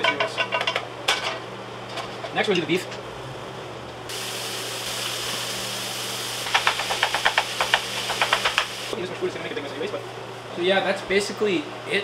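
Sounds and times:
hot oil sizzling in a frying pan: 0:04.1 - 0:09.0.

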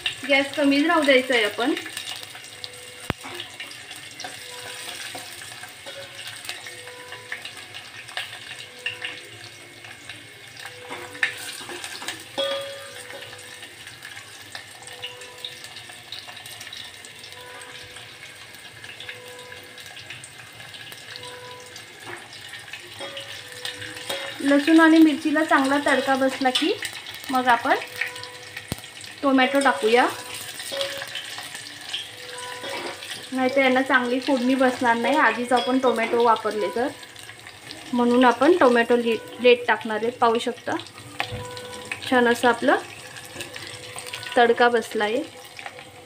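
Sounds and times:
spices sizzling in hot oil: 0:00.0 - 0:46.0.

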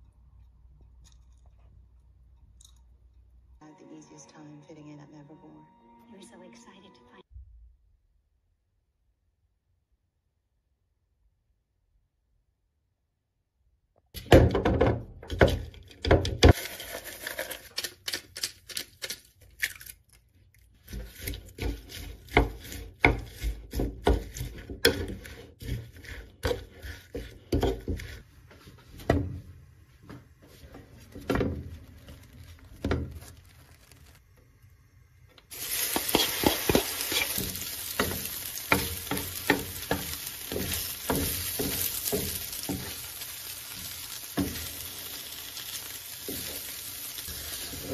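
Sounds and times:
batter sizzling in frying pan: 0:16.4 - 0:19.1, 0:20.8 - 0:34.4, 0:35.5 - 0:47.9
utensil scraping wooden bowl: 0:20.8 - 0:28.3, 0:35.8 - 0:41.8
wooden spatula tapping: 0:20.9 - 0:29.3, 0:35.8 - 0:43.1.

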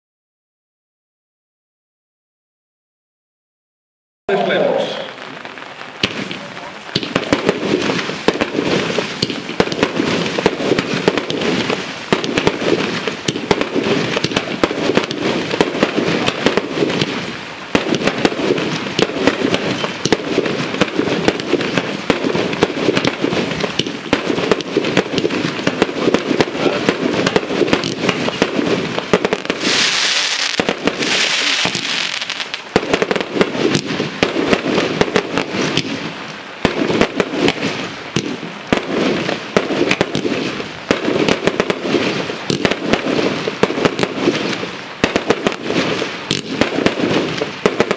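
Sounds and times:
firework cake firing: 0:04.3 - 0:47.9
firework hissing surges: 0:04.6 - 0:38.0.

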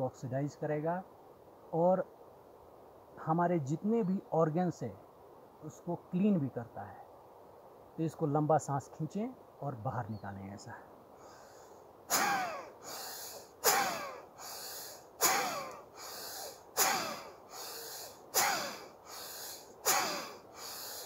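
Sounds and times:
forceful rhythmic breathing: 0:11.2 - 0:21.0.

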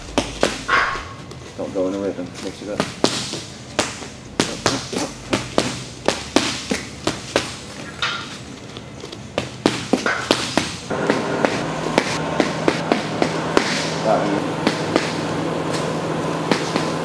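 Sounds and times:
boxing punches smacking: 0:00.0 - 0:01.1, 0:02.7 - 0:07.9, 0:09.3 - 0:14.0, 0:14.6 - 0:15.2.

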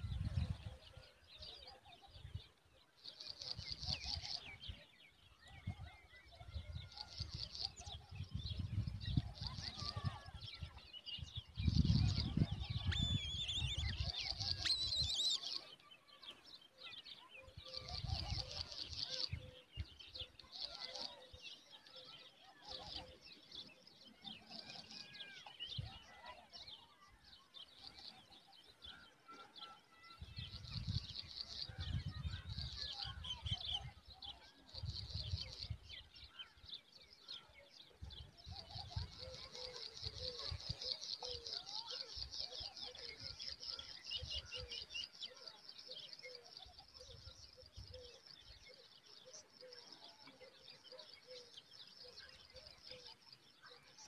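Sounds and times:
bird chick chittering peeps: 0:11.7 - 0:15.7.

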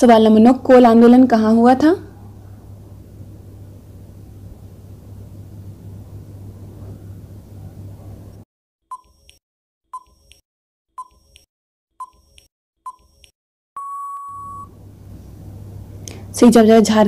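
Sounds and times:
countdown timer ticks: 0:08.9 - 0:10.4, 0:11.0 - 0:13.4
steady timer beep: 0:08.9 - 0:10.4, 0:11.0 - 0:14.7.

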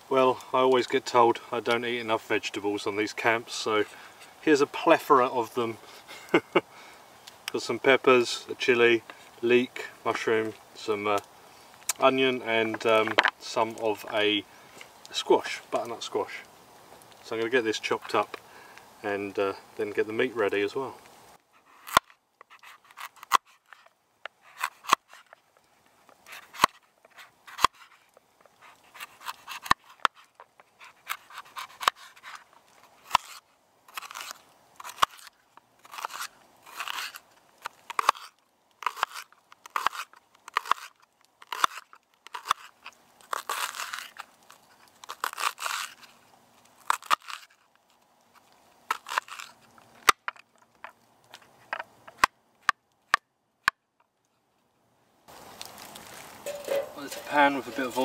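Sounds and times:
knife cutting vegetables: 0:24.5 - 0:25.3, 0:26.3 - 0:28.0, 0:28.6 - 0:32.4, 0:33.0 - 0:37.2, 0:37.9 - 0:42.7, 0:43.3 - 0:44.2, 0:45.0 - 0:46.1, 0:48.9 - 0:49.5.

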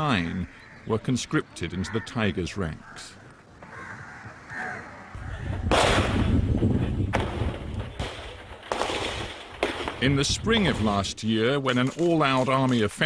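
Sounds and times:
loud explosion blast: 0:05.6 - 0:10.8
gunfire bangs: 0:05.7 - 0:11.0.

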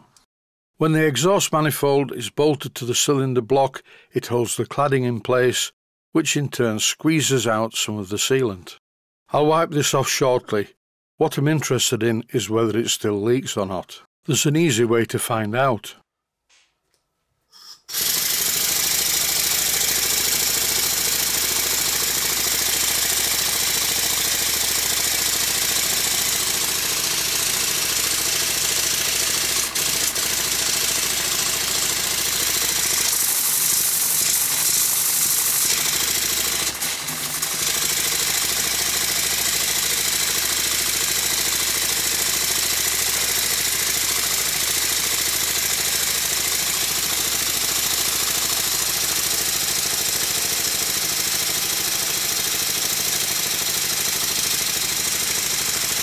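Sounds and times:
model steam engine running: 0:17.9 - 0:56.0
rattle of engine parts: 0:17.9 - 0:56.0.

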